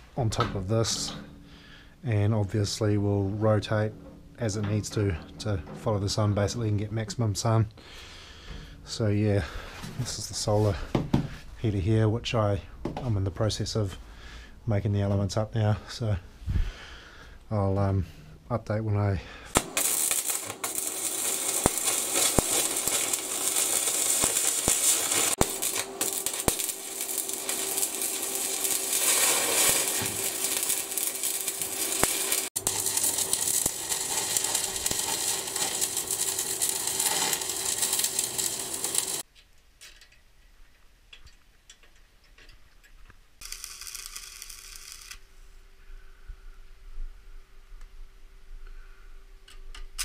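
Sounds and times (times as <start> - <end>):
arc welding crackling sizzle: 19.6 - 39.3, 43.4 - 45.2.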